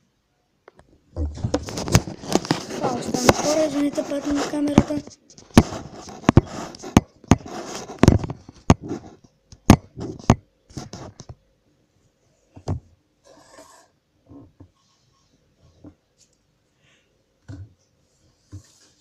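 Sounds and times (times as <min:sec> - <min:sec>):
camera handling knocks and scrapes: 0:01.2 - 0:03.6, 0:04.2 - 0:11.3.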